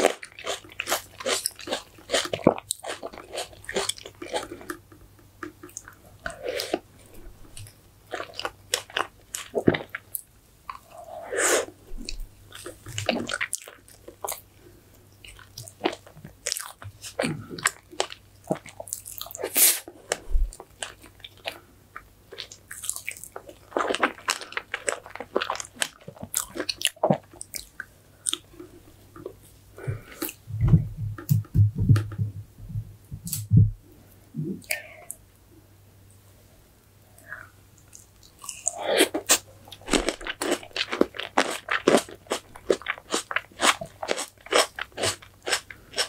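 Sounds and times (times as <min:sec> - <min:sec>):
close chewing and mouth clicks: 0:00.0 - 0:11.0, 0:12.0 - 0:14.5, 0:15.2 - 0:29.4, 0:37.2 - 0:46.0.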